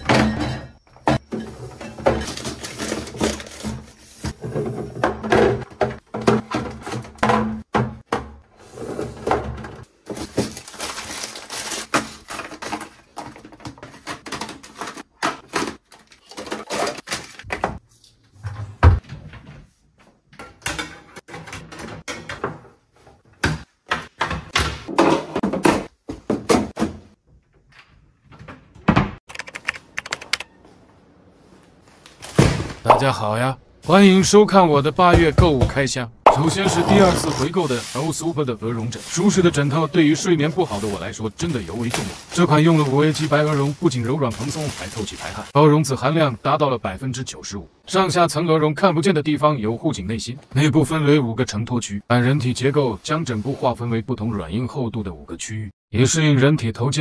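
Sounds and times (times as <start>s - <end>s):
plastic bins clunking: 0.0s - 17.8s, 18.4s - 27.6s, 32.1s - 33.2s, 35.0s - 45.6s.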